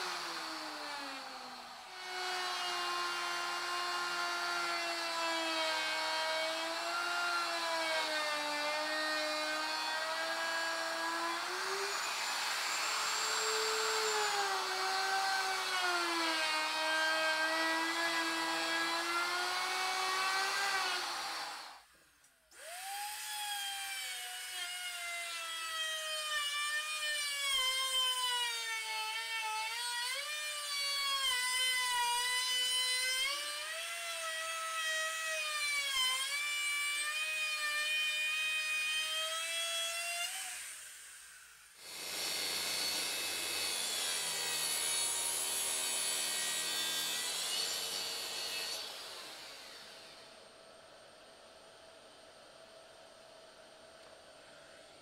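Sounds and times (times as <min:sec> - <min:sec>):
track saw cutting: 0:00.0 - 0:05.8, 0:07.6 - 0:21.8, 0:22.5 - 0:24.5, 0:39.0 - 0:50.3
router whining through plywood: 0:00.0 - 0:21.9, 0:22.5 - 0:50.5.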